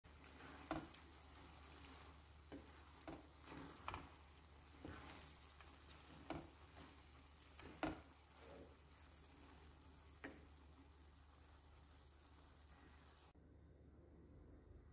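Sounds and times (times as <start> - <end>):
faint sizzle: 0.0 - 13.4
wooden spatula knocking on pan: 0.3 - 8.7.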